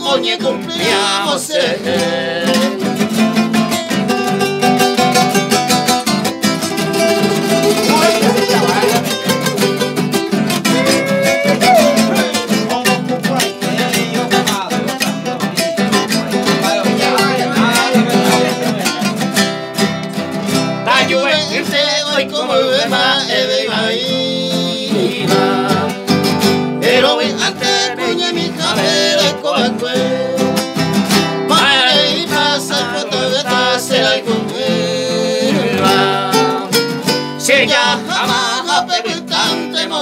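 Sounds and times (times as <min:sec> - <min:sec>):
man singing: 0:00.0 - 0:04.2, 0:06.7 - 0:09.6, 0:10.6 - 0:19.4, 0:20.8 - 0:40.0
classical guitars strummed: 0:00.0 - 0:40.0.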